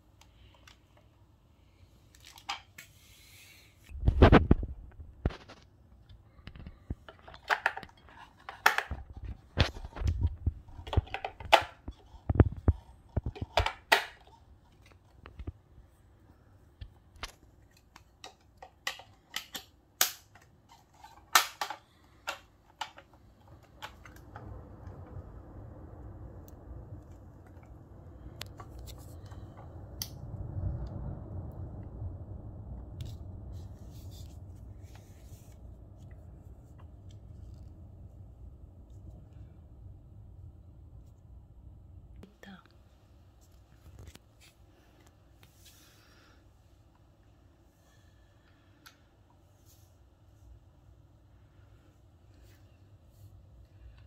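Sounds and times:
faint steady noise: 0.0s - 54.0s
plastic parts clicking and knocking: 5.2s - 15.6s, 17.1s - 24.5s.

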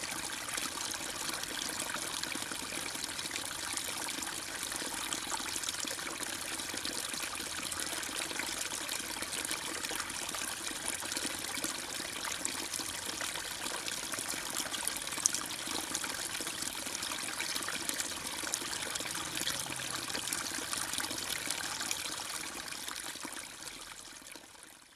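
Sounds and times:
aquarium water trickling and bubbling: 0.0s - 24.9s.

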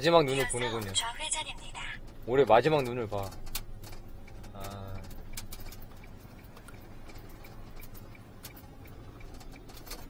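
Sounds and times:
truck engine and road rumble: 0.0s - 10.0s
light clicks and ticks: 2.0s - 10.0s.

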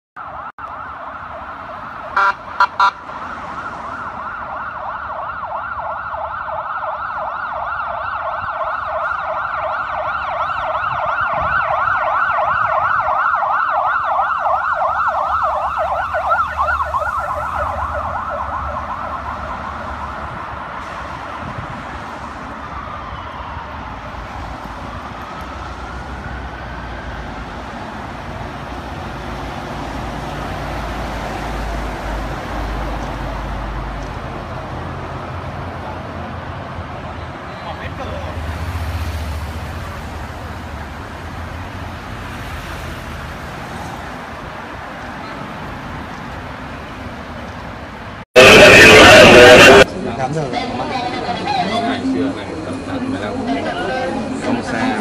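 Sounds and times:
emergency siren yelping: 0.2s - 34.9s, 48.4s - 49.9s
low traffic rumble: 0.2s - 55.0s
horn blasts: 2.2s - 3.0s, 48.4s - 49.9s.

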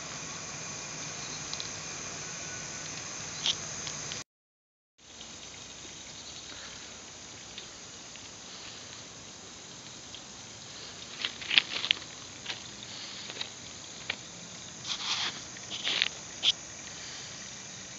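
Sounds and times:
insects chirring: 0.0s - 4.2s, 5.0s - 17.9s
footsteps on gravel: 10.7s - 17.2s.

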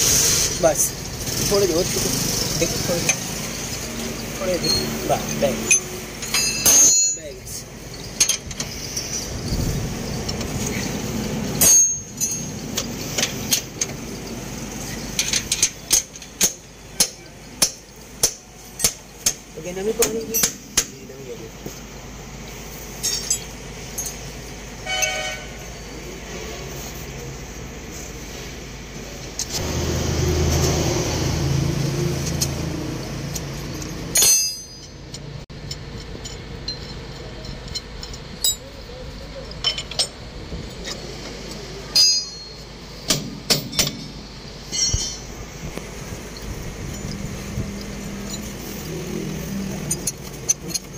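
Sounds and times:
vehicle engine rumbling: 0.0s - 50.9s
steel clinks and knocks: 3.0s - 21.0s, 23.0s - 24.3s, 33.3s - 38.7s, 39.5s - 40.2s, 41.9s - 45.4s, 46.2s - 48.9s
ringing metallic clank: 4.5s - 9.3s, 11.6s - 19.4s, 33.8s - 35.2s, 41.9s - 45.4s
hammer strikes on metal: 15.6s - 21.0s, 41.9s - 45.3s.

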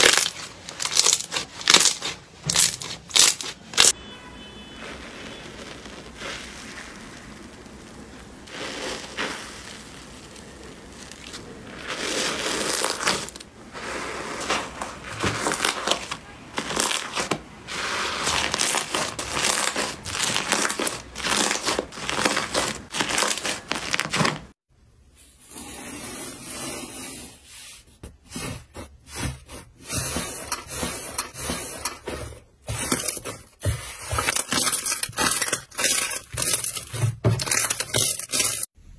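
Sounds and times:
slime crackling and squelching: 0.0s - 4.0s, 4.6s - 24.6s, 28.3s - 38.8s.

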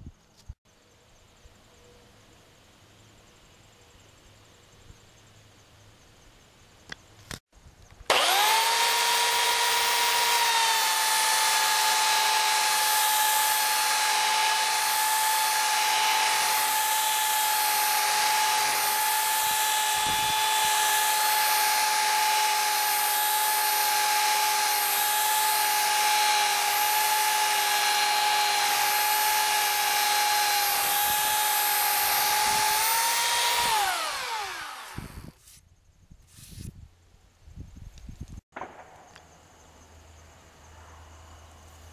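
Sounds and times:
belt sander whining: 8.1s - 35.6s.

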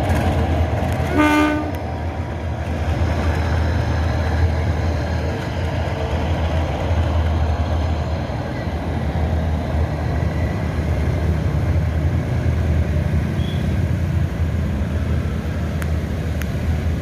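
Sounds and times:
train rumbling past: 0.0s - 17.0s.

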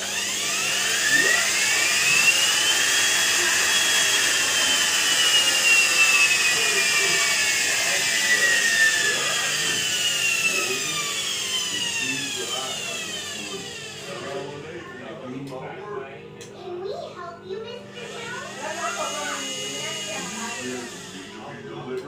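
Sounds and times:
electric motor whining: 0.0s - 15.4s, 17.5s - 22.0s.

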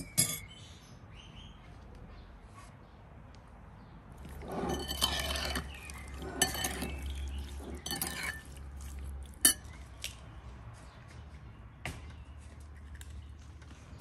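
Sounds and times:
spoon stirring wet cherries: 4.2s - 9.9s.

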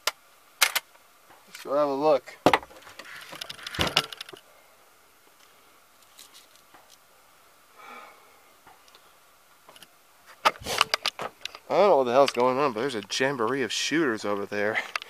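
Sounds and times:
soft breath-like sound: 7.7s - 9.2s.

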